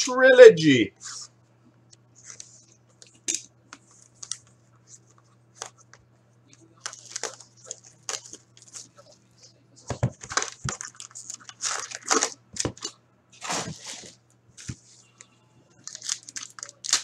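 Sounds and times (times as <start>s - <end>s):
foil packs rustling: 6.8s - 8.9s, 10.2s - 14.2s, 15.8s - 17.0s
plastic wrap crinkling and tearing: 6.8s - 9.0s, 10.2s - 14.1s, 15.8s - 17.0s.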